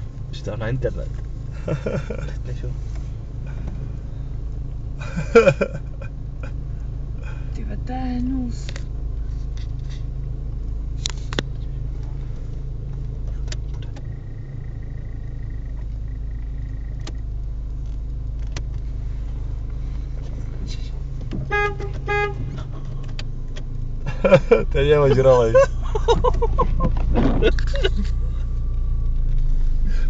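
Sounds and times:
car engine idling: 0.0s - 30.0s
car horn toots: 21.3s - 23.0s.

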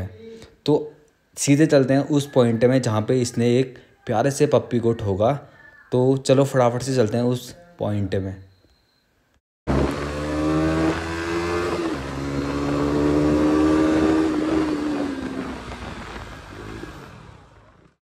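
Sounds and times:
motorcycle engine running hard: 9.7s - 18.0s.

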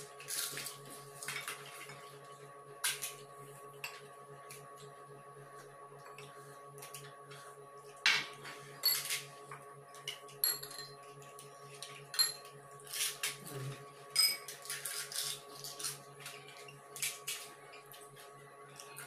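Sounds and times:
spoons clinking on glass bowls: 8.8s - 9.2s, 10.4s - 11.0s, 12.2s - 12.5s, 14.2s - 14.6s.

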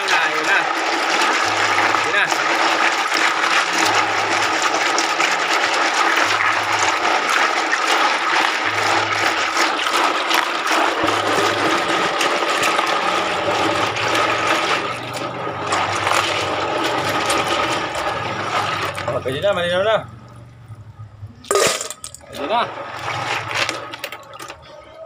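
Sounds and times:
water sloshing and splashing: 0.0s - 25.0s.

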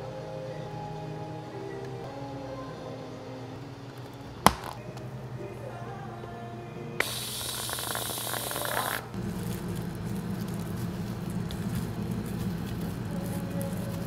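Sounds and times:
steady low hum: 0.0s - 14.0s
cream dispenser click: 7.0s - 9.1s
cream dispenser hissing: 7.0s - 14.0s.

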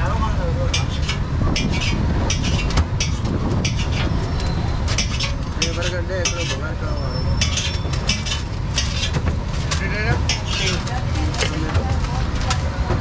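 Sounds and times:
steady low rumble: 0.0s - 6.8s
knife scraping on a griddle: 0.8s - 4.1s, 7.3s - 10.8s
faint background voices: 9.6s - 13.0s.

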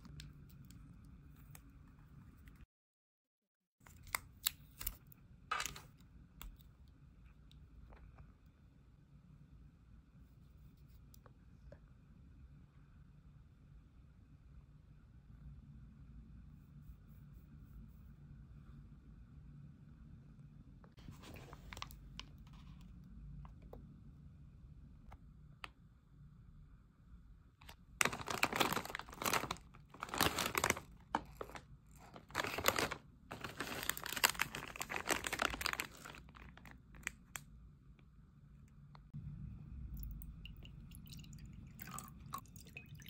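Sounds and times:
plastic packaging crackling: 27.6s - 37.4s.

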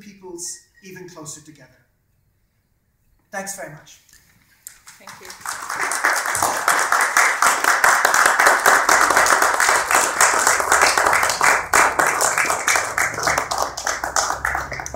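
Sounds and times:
audience applauding: 4.7s - 14.9s.

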